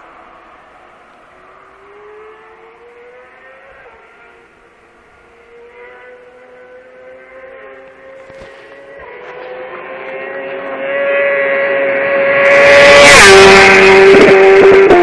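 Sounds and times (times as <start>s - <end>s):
motorcycle engine accelerating: 0.0s - 15.0s.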